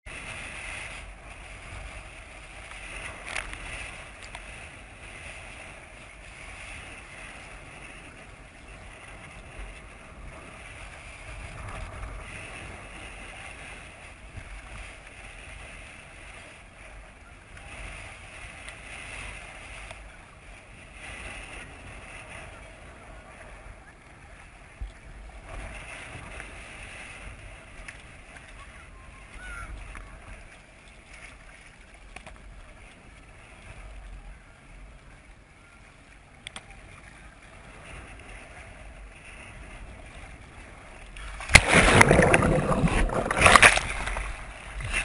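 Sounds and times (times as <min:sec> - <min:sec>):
water lapping and splashing: 0:00.1 - 0:45.0
wind buffeting: 0:38.1 - 0:45.0.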